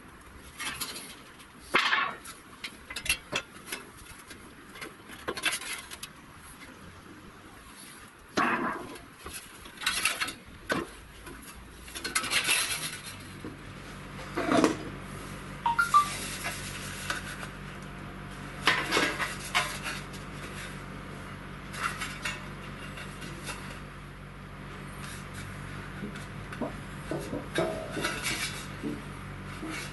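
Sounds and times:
metallic ringing ping: 15.7s - 16.2s.

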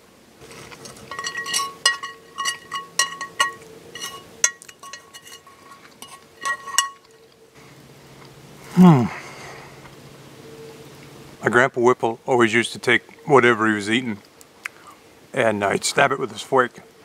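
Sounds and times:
metal fork clinking on pan: 0.8s - 7.2s.

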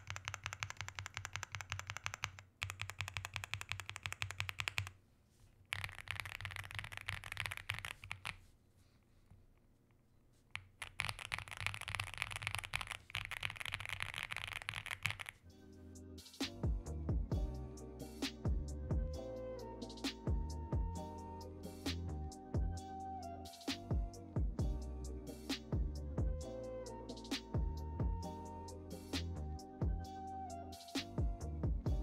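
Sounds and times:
mechanical keyboard typing: 0.0s - 5.0s, 5.7s - 8.4s, 10.5s - 15.4s.

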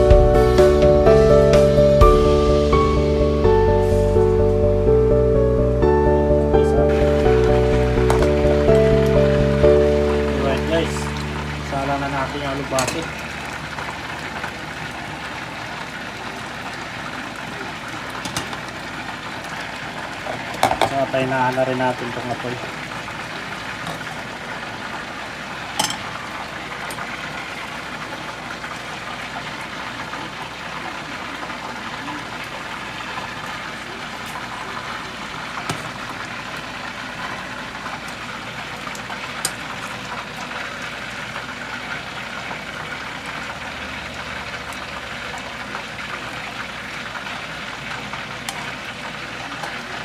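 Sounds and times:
soup bubbling in a pot: 10.0s - 21.3s, 22.1s - 50.0s.

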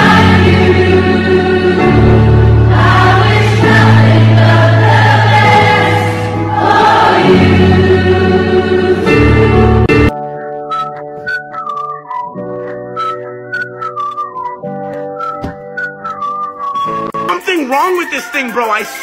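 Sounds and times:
choir singing: 0.0s - 10.1s.

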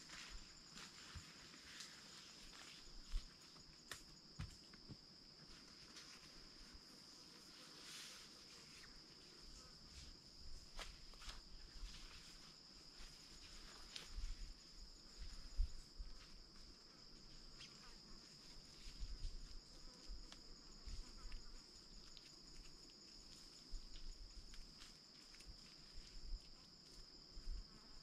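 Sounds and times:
insects high-pitched drone: 0.0s - 28.0s
footsteps thumping on earth: 3.0s - 5.1s.

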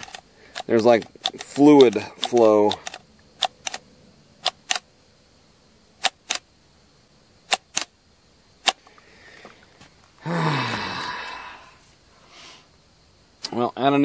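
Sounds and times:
chainsaw trigger clicking: 0.0s - 3.8s, 6.0s - 6.4s, 7.5s - 7.9s.

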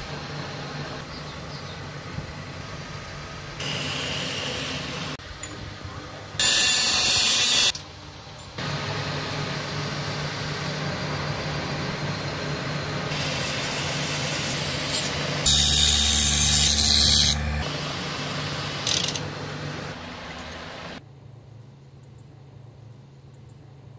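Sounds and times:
small lathe running: 6.4s - 7.8s, 10.7s - 19.9s
loud hissing bursts: 13.1s - 16.2s.

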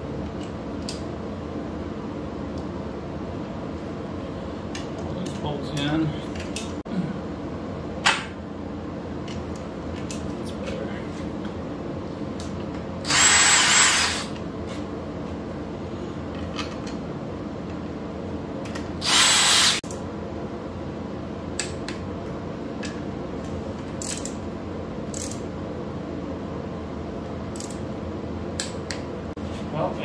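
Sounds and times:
steady background hum: 0.0s - 30.0s
cordless drill running: 13.0s - 14.3s, 19.0s - 19.8s
wrench clicking: 24.0s - 24.4s, 25.1s - 25.4s, 27.6s - 27.8s.

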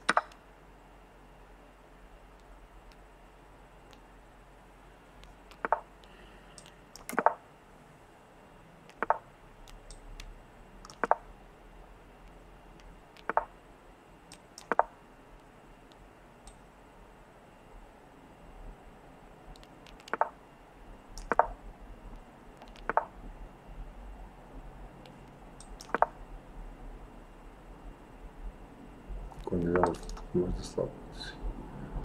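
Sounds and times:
sharp clicks: 0.0s - 0.4s, 5.2s - 7.4s, 8.9s - 11.3s, 12.2s - 13.5s, 14.3s - 16.6s, 19.5s - 20.4s, 21.2s - 23.2s, 25.0s - 26.2s, 29.3s - 30.3s.

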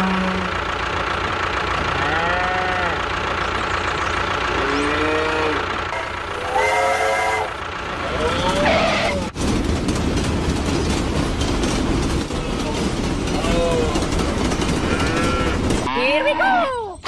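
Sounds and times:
cows mooing: 0.0s - 0.6s, 1.8s - 3.0s, 4.5s - 9.3s, 14.6s - 16.6s
engine drone: 0.0s - 16.7s.

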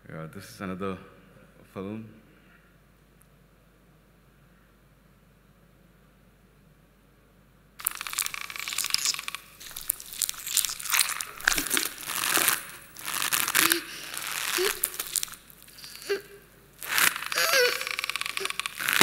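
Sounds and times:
rustling crinkly noise: 7.8s - 19.0s
short squeaky sounds: 7.8s - 19.0s.

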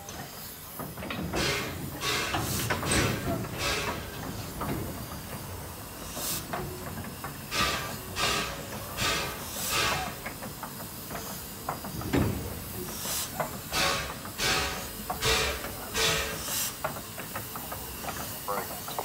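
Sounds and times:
steam locomotive chuffing: 0.0s - 19.0s
steam venting hiss: 0.0s - 19.0s.

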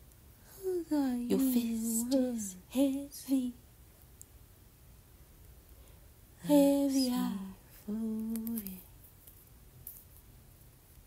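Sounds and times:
person singing wordless phrases: 0.5s - 3.6s, 6.4s - 8.9s.

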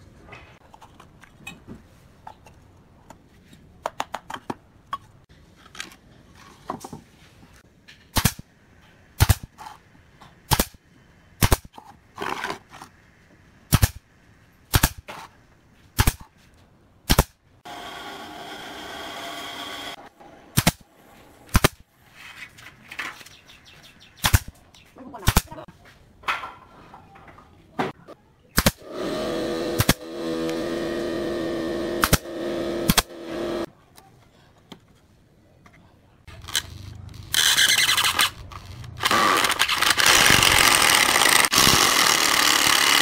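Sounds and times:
nail gun firing: 8.1s - 8.4s, 9.2s - 9.5s, 10.5s - 10.8s, 11.4s - 11.7s, 13.7s - 14.0s, 14.7s - 15.1s, 16.0s - 16.2s, 17.1s - 17.3s, 20.6s - 20.8s, 21.5s - 21.8s, 24.2s - 24.5s, 28.6s - 33.7s, 39.0s - 43.0s.

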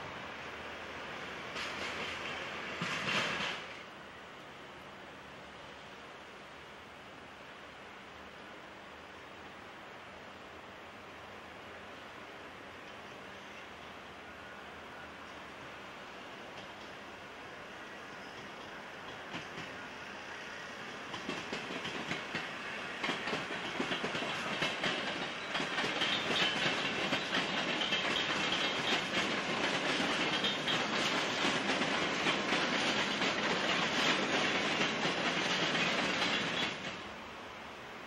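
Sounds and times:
train wheels clicking over rail joints: 1.5s - 3.9s, 18.3s - 19.8s, 20.9s - 37.1s.

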